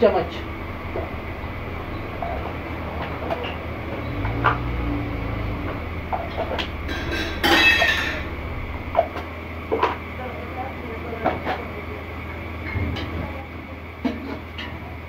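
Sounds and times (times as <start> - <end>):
low rumble: 0.0 - 11.3.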